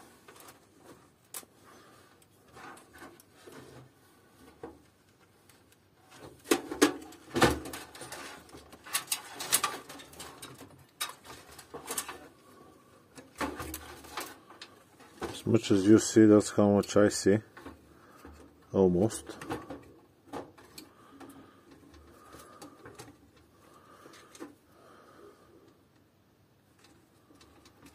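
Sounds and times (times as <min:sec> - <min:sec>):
clicks and rattles in pc case: 0:06.2 - 0:12.3.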